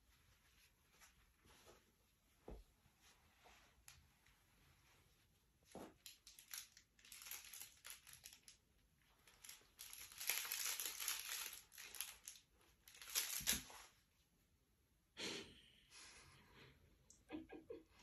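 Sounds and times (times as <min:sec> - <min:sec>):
plush toy crinkling: 0:05.7 - 0:14.0.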